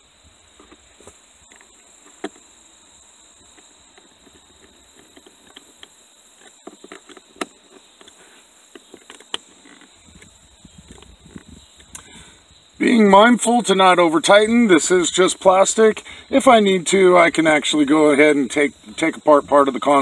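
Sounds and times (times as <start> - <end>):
steady high hiss: 0.0 - 20.0.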